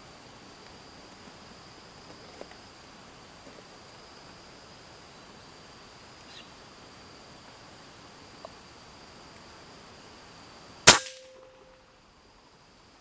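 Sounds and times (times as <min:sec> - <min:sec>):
air rifle shot: 0:10.9 - 0:11.5.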